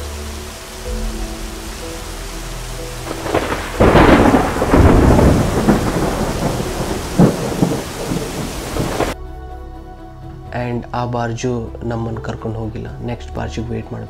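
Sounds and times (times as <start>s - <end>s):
heavy rain on sheet roof: 0.0s - 9.2s
thunder clap rumbling: 1.0s - 9.2s.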